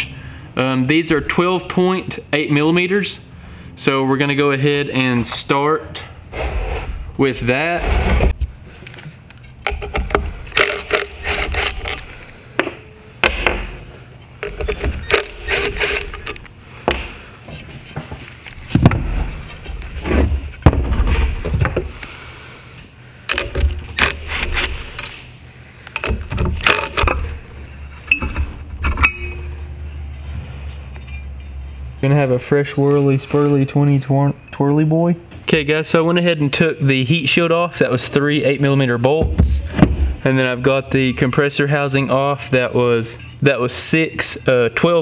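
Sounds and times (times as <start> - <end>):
metal clinks and scrapes: 9.4 - 12.1, 14.4 - 16.5, 28.8 - 32.0
ratchet clicking: 9.7 - 12.0, 14.4 - 16.5.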